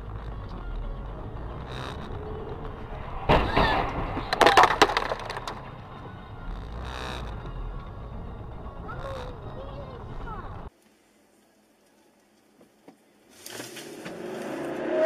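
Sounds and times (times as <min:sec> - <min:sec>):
road noise inside car: 0:00.0 - 0:04.5, 0:05.3 - 0:10.7
sharp cracks: 0:01.6 - 0:05.8
loud bang: 0:02.9 - 0:05.8.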